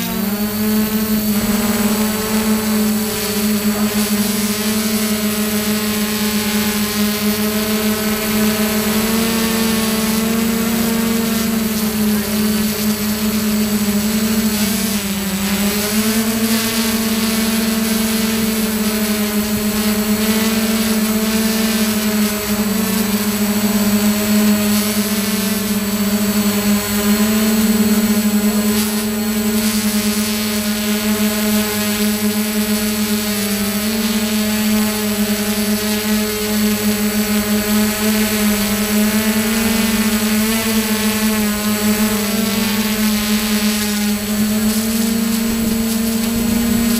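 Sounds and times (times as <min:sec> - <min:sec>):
drone propellers whining: 0:00.0 - 0:46.9.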